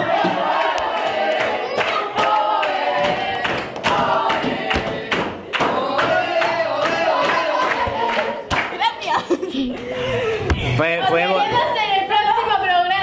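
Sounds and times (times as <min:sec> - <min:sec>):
hands clapping: 0:00.2 - 0:08.8.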